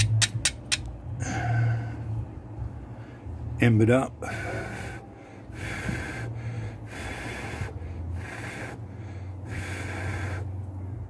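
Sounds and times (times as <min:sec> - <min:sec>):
person blowing breathy puffs: 0:04.3 - 0:10.6.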